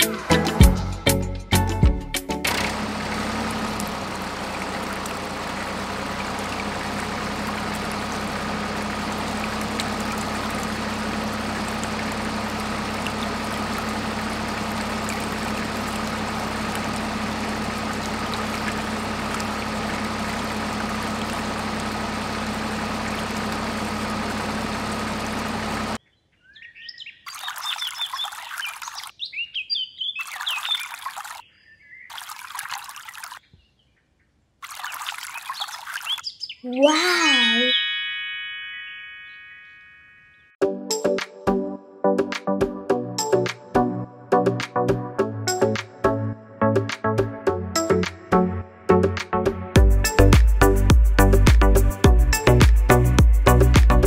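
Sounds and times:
water pump humming: 0:02.5 - 0:26.0, 0:32.1 - 0:33.4, 0:34.6 - 0:36.2
water pouring: 0:02.7 - 0:25.8, 0:27.3 - 0:29.1, 0:30.2 - 0:31.4, 0:32.1 - 0:33.4, 0:34.6 - 0:36.2
water trickling: 0:02.8 - 0:26.0, 0:27.3 - 0:29.1, 0:30.2 - 0:31.4, 0:32.1 - 0:33.4, 0:34.6 - 0:36.2
birds chirping: 0:26.0 - 0:38.3.

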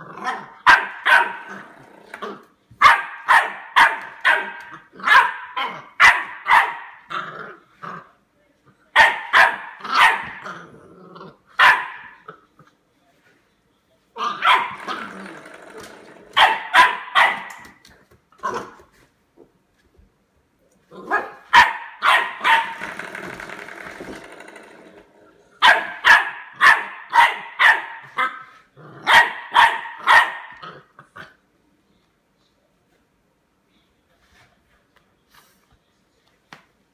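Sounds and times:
puppy barking: 0:00.2 - 0:01.6, 0:02.8 - 0:07.1, 0:09.0 - 0:10.5, 0:11.6 - 0:12.3, 0:14.2 - 0:15.0, 0:16.4 - 0:17.8, 0:21.0 - 0:22.8, 0:25.6 - 0:30.8.

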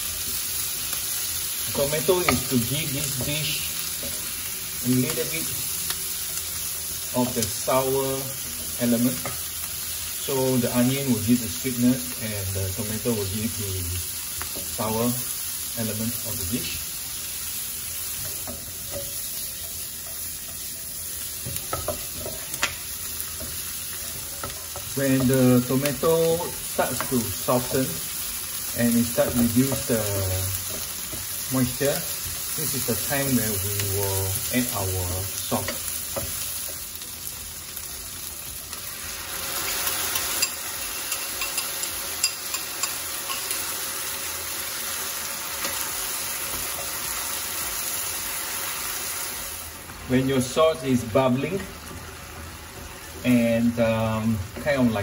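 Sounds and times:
vegetables sizzling in oil: 0:00.0 - 0:55.0.

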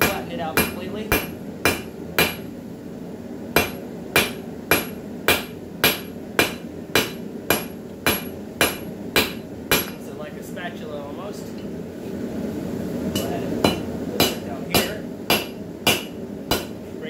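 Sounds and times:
hammer striking metal on anvil: 0:00.0 - 0:02.5, 0:03.6 - 0:10.0, 0:13.1 - 0:16.8.

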